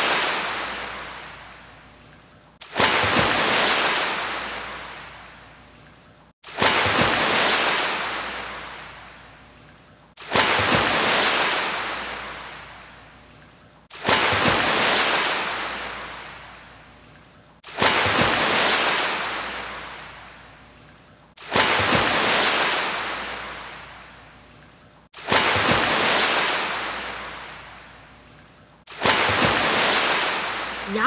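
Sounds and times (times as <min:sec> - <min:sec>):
ocean waves crashing: 0:00.0 - 0:01.1, 0:02.6 - 0:05.0, 0:06.5 - 0:08.7, 0:10.2 - 0:12.4, 0:14.0 - 0:16.1, 0:17.7 - 0:19.9, 0:21.5 - 0:23.6, 0:25.2 - 0:27.4, 0:28.9 - 0:31.0.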